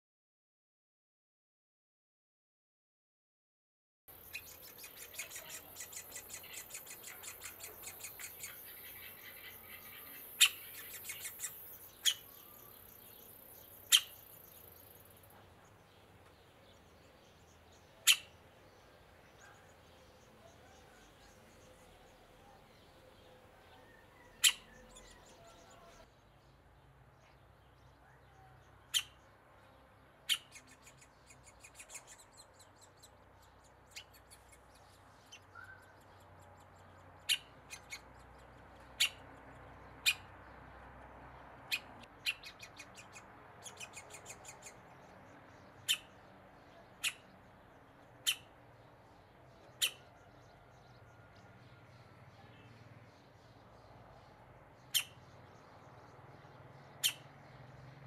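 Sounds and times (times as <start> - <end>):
woodpecker nestling calling: 4.1 - 15.3, 17.7 - 18.4, 23.1 - 26.0, 33.8 - 39.3, 40.0 - 40.3, 41.6 - 45.1, 45.7 - 46.2, 46.9 - 47.4, 48.0 - 48.6, 49.6 - 50.2, 54.8 - 55.6, 56.9 - 57.3.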